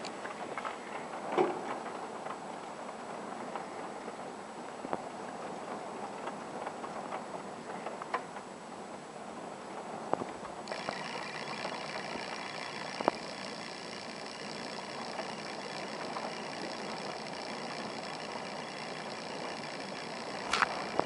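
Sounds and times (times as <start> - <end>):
high whine of several pitches: 10.7 - 21.0.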